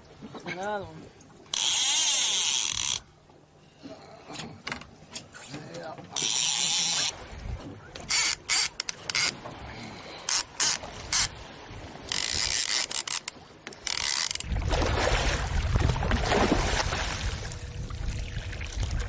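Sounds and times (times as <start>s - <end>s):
wind: 0.0s - 19.0s
fishing reel ratcheting: 1.5s - 3.1s, 6.2s - 7.1s, 8.1s - 9.4s, 10.3s - 11.3s, 12.1s - 14.5s
water splashing: 14.4s - 19.0s.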